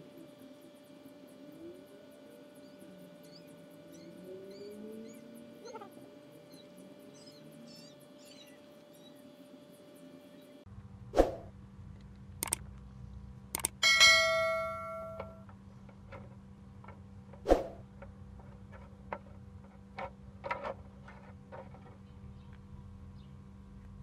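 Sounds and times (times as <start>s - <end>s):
metal ringing like a bell: 13.8s - 15.4s.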